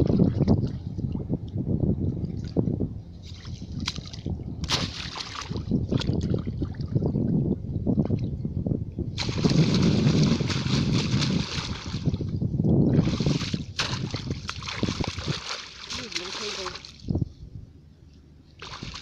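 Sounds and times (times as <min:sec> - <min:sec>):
hands sloshing in muddy water: 0:03.2 - 0:07.0, 0:09.2 - 0:12.2, 0:12.9 - 0:17.1, 0:18.6 - 0:19.0
heavy water splashing: 0:03.3 - 0:06.9, 0:09.2 - 0:12.3, 0:12.9 - 0:17.1, 0:18.6 - 0:19.0.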